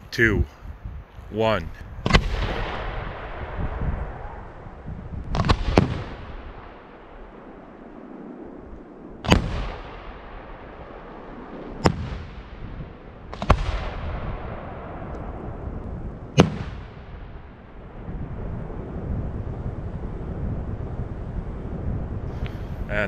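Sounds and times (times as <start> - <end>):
firework bangs echoing: 5.3 - 7.5, 9.2 - 15.4, 16.3 - 17.7.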